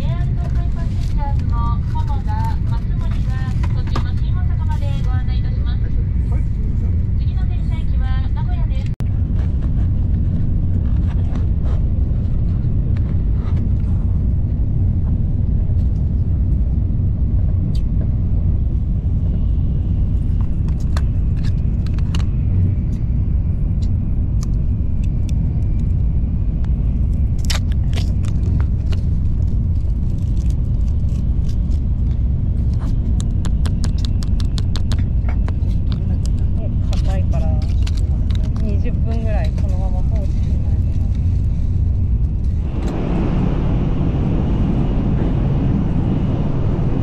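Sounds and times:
train low rumble: 0:00.0 - 0:47.0.

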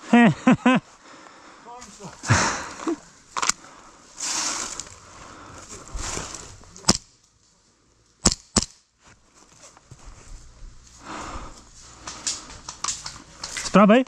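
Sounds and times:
rustling movement: 0:00.8 - 0:08.1, 0:09.0 - 0:13.9
airsoft gun shots: 0:08.2 - 0:08.8.

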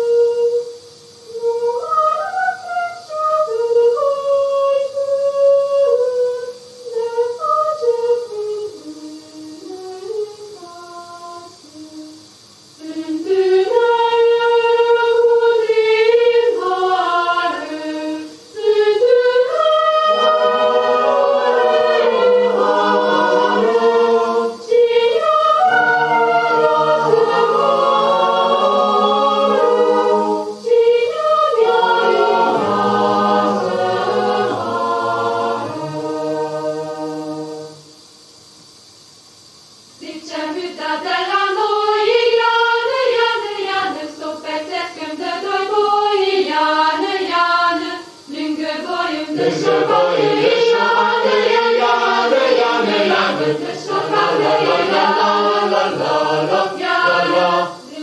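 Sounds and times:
choir singing unaccompanied: 0:00.0 - 0:38.4, 0:39.7 - 0:58.0.

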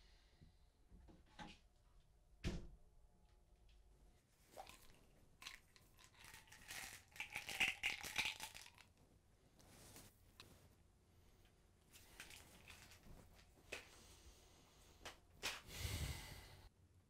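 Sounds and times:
pills rattling in bottle: 0:04.6 - 0:09.0, 0:12.0 - 0:13.5.

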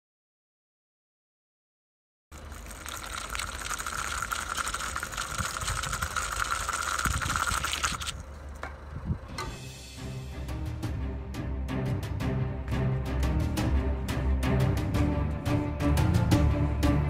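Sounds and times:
wheels hissing on wet asphalt: 0:02.4 - 0:08.9.

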